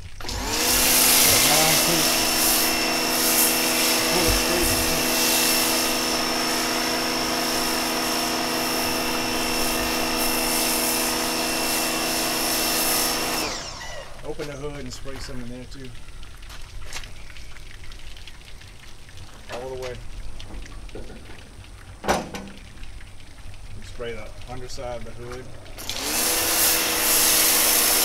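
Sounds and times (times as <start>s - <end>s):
motor hum: 0.1s - 14.4s, 25.4s - 28.0s
pressure washer spraying foam: 0.2s - 14.4s, 25.8s - 28.0s.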